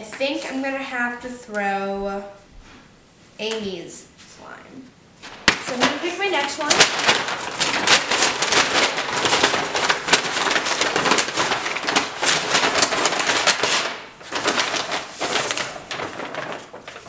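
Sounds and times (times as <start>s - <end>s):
paper bag rustling: 5.2s - 17.0s.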